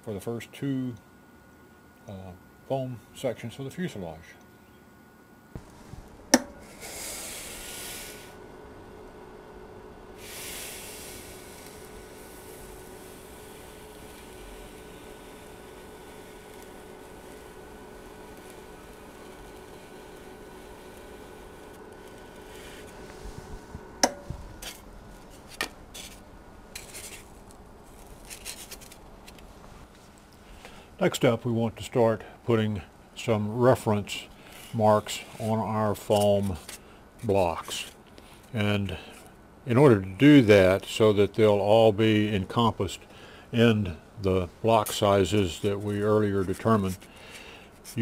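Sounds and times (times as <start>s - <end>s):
faint steady hum: 0.0s - 48.0s
foam block hissing across hot wire: 5.6s - 29.0s.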